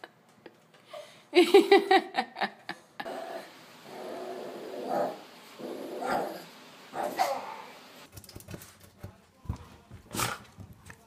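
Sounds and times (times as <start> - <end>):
dog barking: 6.0 - 7.7.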